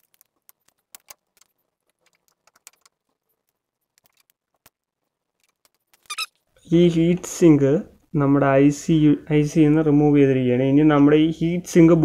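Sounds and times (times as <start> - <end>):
faint clicks and taps: 0.0 - 6.1.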